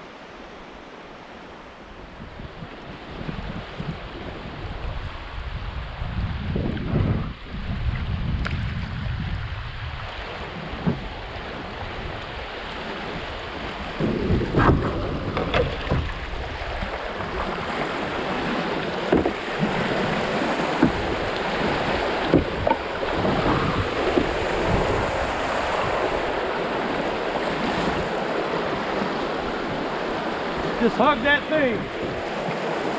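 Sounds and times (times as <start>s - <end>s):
creek water rushing: 0.0s - 32.9s
short knocks and thumps: 10.8s - 11.1s, 19.0s - 19.9s, 20.6s - 24.4s.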